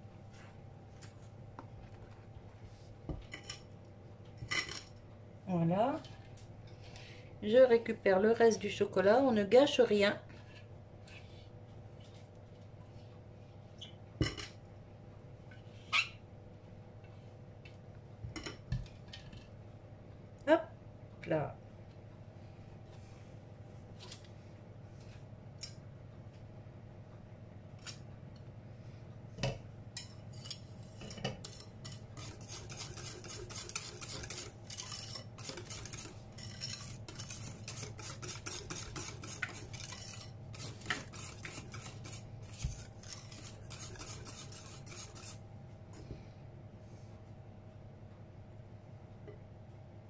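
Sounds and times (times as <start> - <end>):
spatula knocking and scraping bowl: 30.0 - 45.4
whisk beating batter in glass bowl: 30.4 - 45.4.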